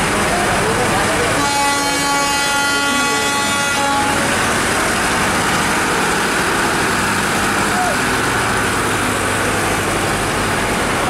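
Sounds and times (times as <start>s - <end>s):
train coaches rumbling past: 0.0s - 11.0s
locomotive horn blast: 1.3s - 4.6s.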